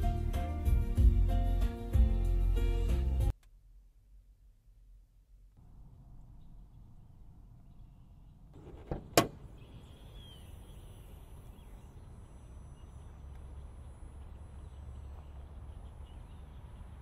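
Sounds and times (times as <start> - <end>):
car hood latch clack: 8.6 - 9.5
faint bird chirp: 9.4 - 17.0.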